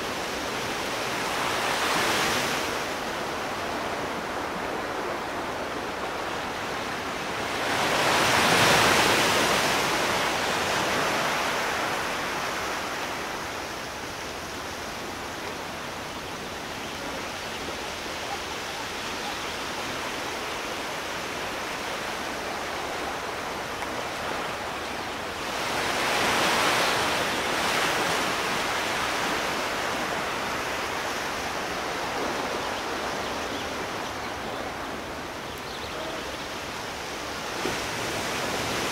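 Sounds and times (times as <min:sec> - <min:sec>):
waves breaking: 0:00.0 - 0:38.9
waves rushing: 0:00.0 - 0:38.9.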